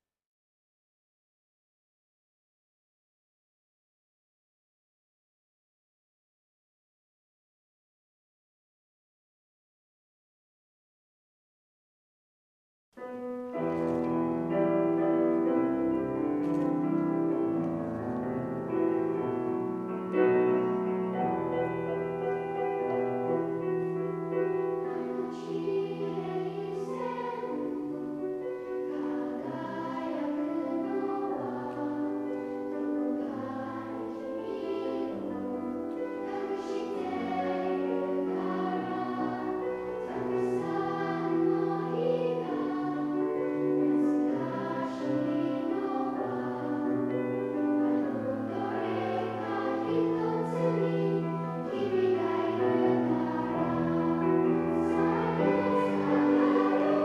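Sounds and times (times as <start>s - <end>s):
children's choir singing: 13.5s - 57.0s.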